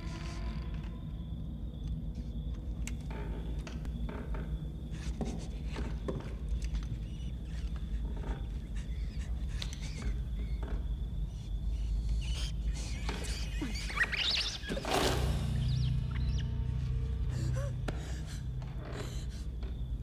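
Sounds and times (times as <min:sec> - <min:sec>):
creaks and knocks: 0:02.5 - 0:11.3
high squealing: 0:07.2 - 0:17.8.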